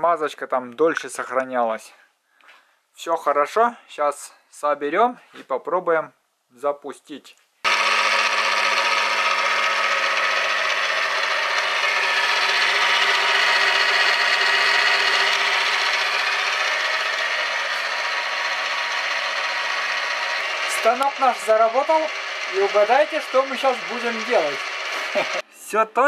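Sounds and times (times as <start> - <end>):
milling machine motor whining: 7.7 - 25.4.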